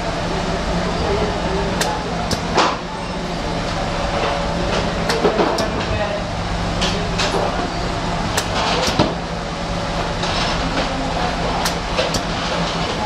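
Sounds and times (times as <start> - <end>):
low mechanical hum: 0.0 - 13.0
sharp clicks: 1.8 - 2.5.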